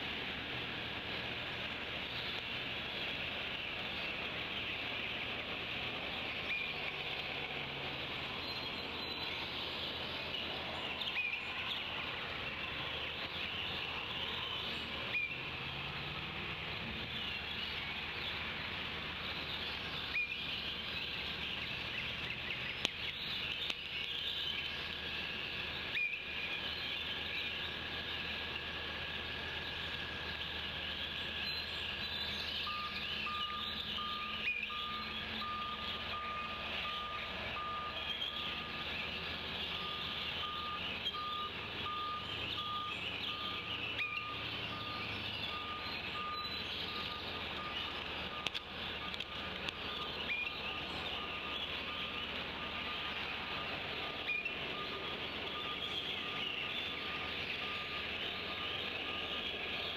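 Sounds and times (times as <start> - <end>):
steady hiss: 0.0 - 59.9
songbirds chirping and singing: 1.0 - 59.9
vehicle reversing beeper: 31.3 - 59.9.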